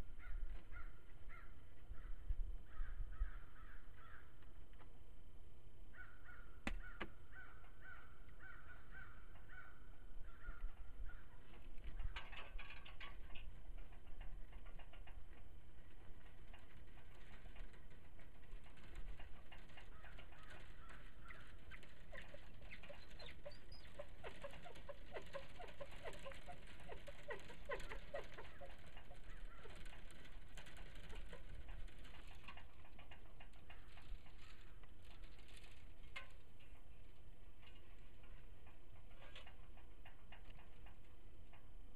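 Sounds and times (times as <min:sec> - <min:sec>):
birds calling: 0:00.0 - 0:04.4, 0:05.9 - 0:12.4, 0:18.7 - 0:32.8.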